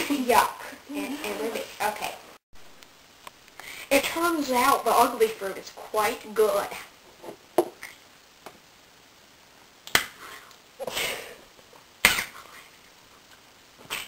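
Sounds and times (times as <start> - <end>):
sharp smacking clicks: 9.8 - 10.2.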